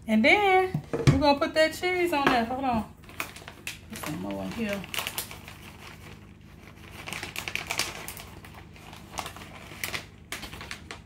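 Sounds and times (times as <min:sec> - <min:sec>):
plastic packaging crinkling: 0:02.9 - 0:11.0.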